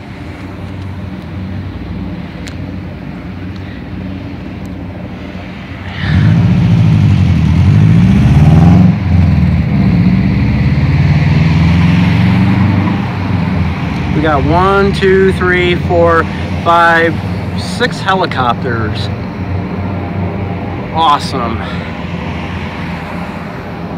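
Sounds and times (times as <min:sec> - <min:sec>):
helicopters flying over: 0:13.1 - 0:23.9.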